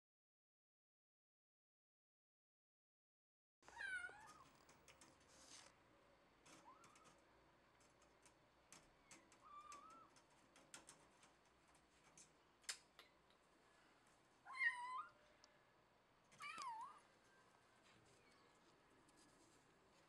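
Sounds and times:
cat meowing: 3.7 - 4.5, 9.1 - 10.1, 14.5 - 15.2, 16.4 - 17.1
faint clicks: 4.2 - 5.8, 6.4 - 13.4.

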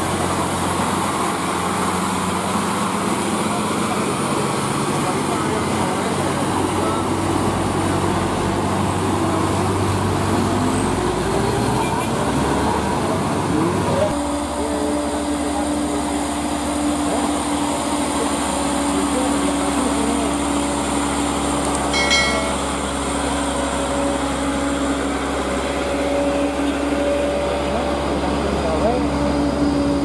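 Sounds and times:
truck diesel engine labouring: 0.0 - 30.0
brief high tone: 21.9 - 22.7.

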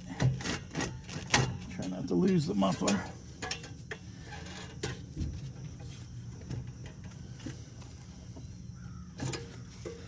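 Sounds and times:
metallic clicks and scrapes: 0.0 - 7.6.

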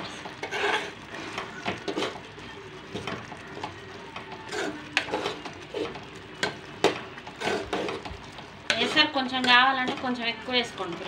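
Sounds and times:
metal spoon scraping pot: 0.3 - 2.2, 4.4 - 6.6, 7.3 - 8.1, 8.7 - 10.0.

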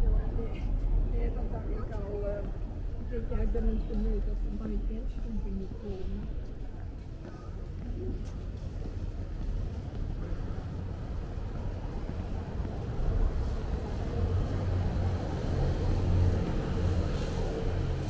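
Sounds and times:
street ambience rumble: 0.0 - 18.0.

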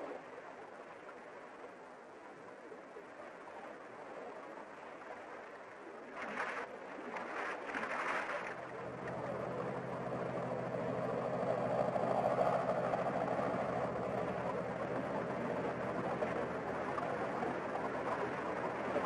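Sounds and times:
small plane engine droning: 8.4 - 19.0.

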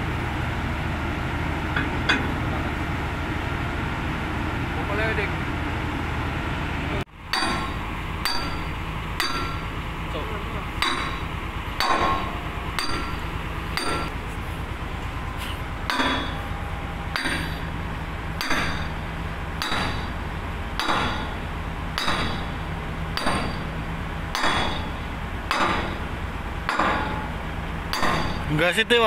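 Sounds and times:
sledgehammer clanging on steel: 1.8 - 2.4, 7.3 - 9.7, 10.8 - 14.2, 15.4 - 17.8, 18.4 - 28.6.

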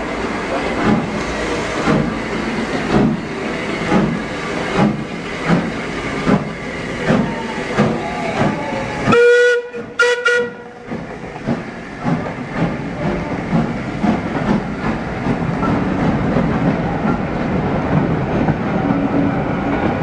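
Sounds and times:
steam locomotive chuffing: 0.0 - 20.0
steam whistle toots: 9.0 - 10.8.

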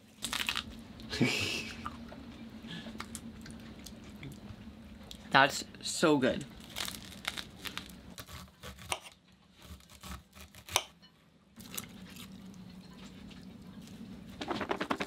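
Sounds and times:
faint low hum: 10.4 - 15.0
plastic container shaken rattling: 14.4 - 15.0.

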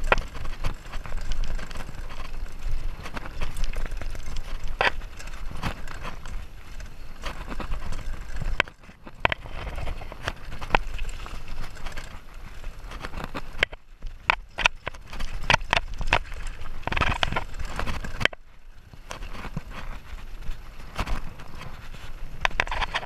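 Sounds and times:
bike rattling over bumps: 0.0 - 23.0
bike tyres on loose earth: 0.0 - 23.0.

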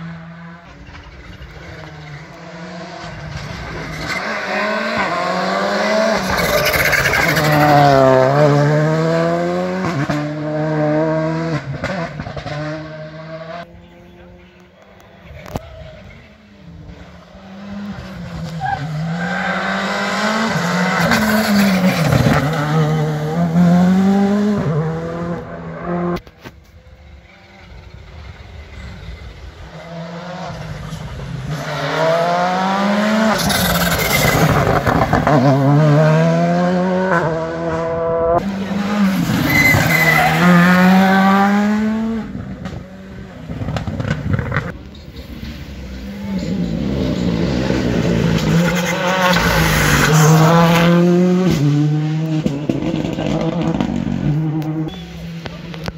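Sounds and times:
rally car engine revving: 0.0 - 14.7, 15.4 - 55.9.

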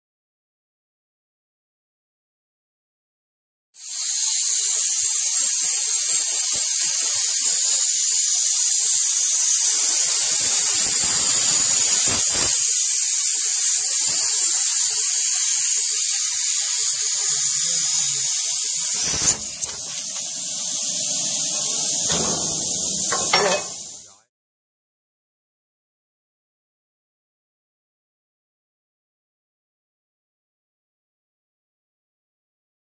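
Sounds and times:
plasma cutter torch hissing: 3.8 - 24.2.

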